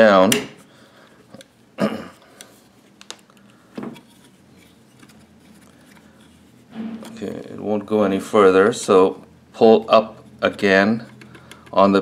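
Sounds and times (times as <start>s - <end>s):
short loud metal sounds: 6.7s - 7.8s.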